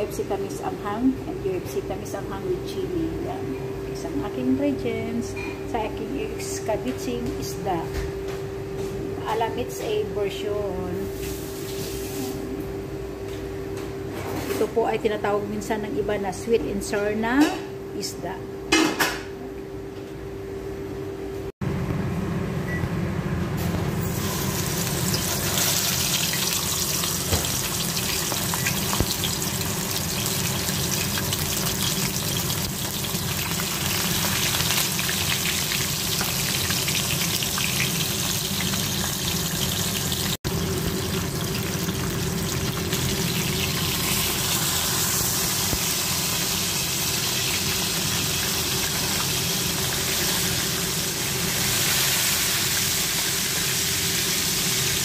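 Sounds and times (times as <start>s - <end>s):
fish frying in oil: 24.1s - 55.0s.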